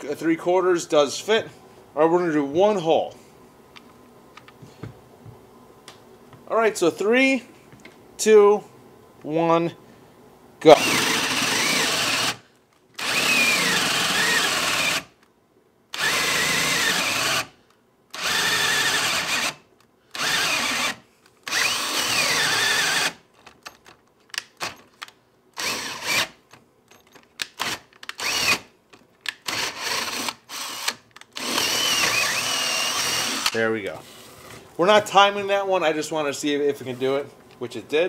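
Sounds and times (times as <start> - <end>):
cordless drill motor whining: 10.7 - 12.4, 13.0 - 15.2, 16.0 - 23.2, 25.6 - 26.4, 27.6 - 28.7, 29.4 - 33.6.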